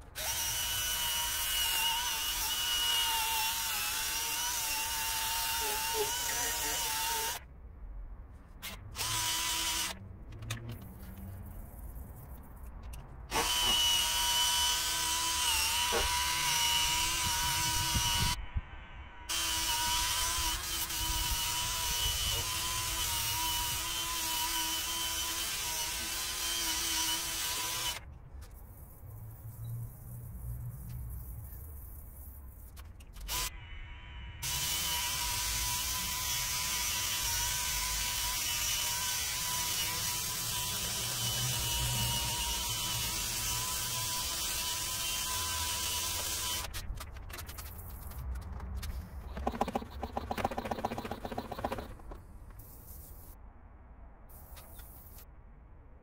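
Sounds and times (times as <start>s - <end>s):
power drill whining: 0.2s - 7.4s, 9.0s - 10.0s, 13.3s - 18.4s, 19.3s - 28.0s, 34.4s - 46.7s.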